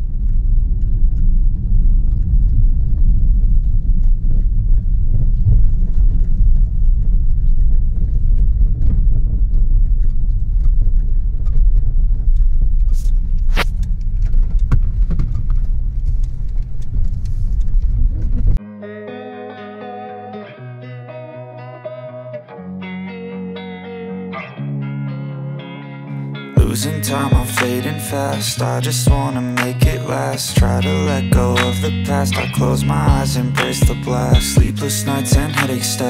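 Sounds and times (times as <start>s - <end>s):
vehicle rumbling on rough road: 0.0s - 18.6s.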